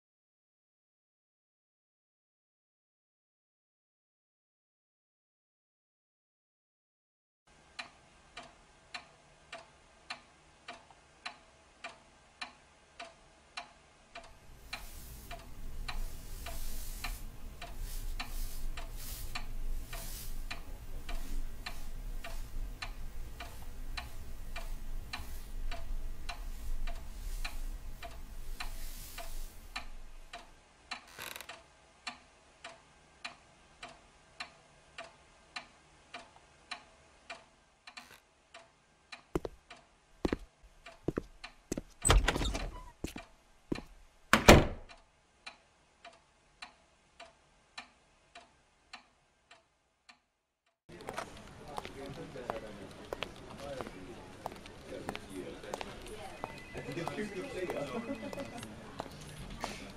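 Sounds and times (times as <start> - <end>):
low rumble and hiss: 7.6 - 30.9
clock ticking: 7.7 - 42.4, 43.7 - 50.3.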